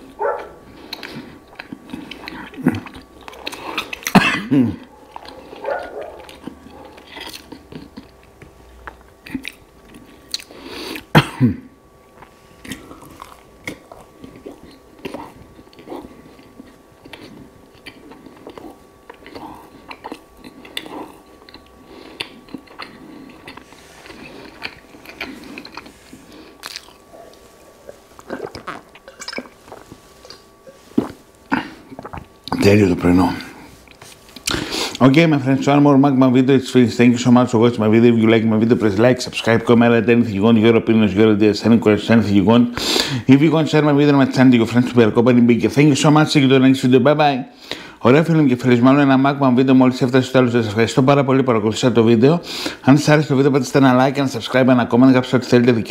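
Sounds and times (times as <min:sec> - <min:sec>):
chewing bread: 0:00.0 - 0:04.2, 0:04.8 - 0:11.1, 0:12.1 - 0:32.6
wet mouth clicks and smacks: 0:10.3 - 0:10.5, 0:28.2 - 0:30.4.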